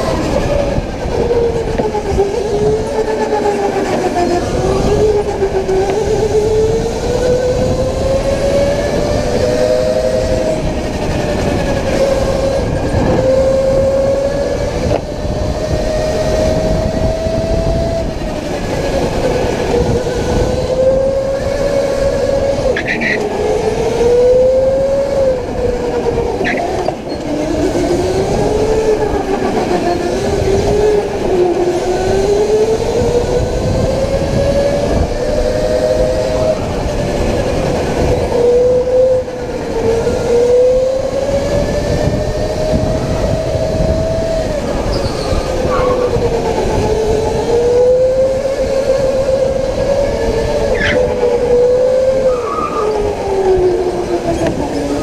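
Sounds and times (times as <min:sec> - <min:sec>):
electric go-kart motor whining: 0:00.0 - 0:55.0
tyre and wind noise: 0:00.0 - 0:55.0
high squeaks: 0:22.8 - 0:23.3.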